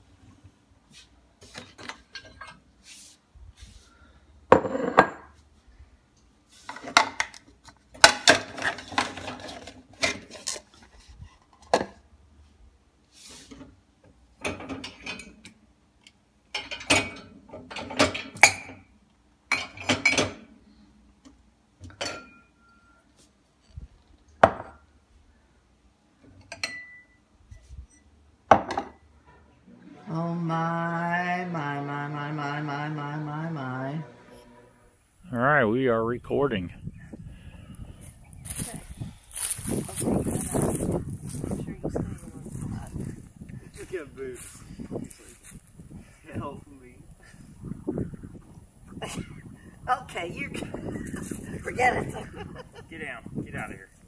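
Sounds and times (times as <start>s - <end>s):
glasses and mugs clinking: 26.5s - 27.1s.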